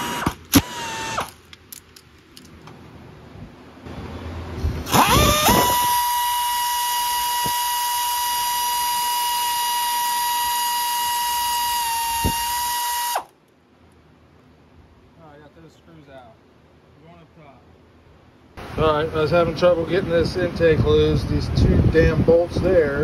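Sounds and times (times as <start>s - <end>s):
power tool motor whining: 0.0s - 1.4s, 4.9s - 13.3s.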